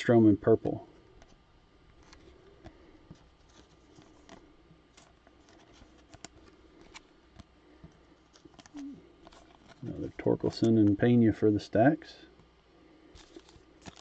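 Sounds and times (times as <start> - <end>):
cards clicking and sliding: 2.0 - 7.5, 13.1 - 14.0.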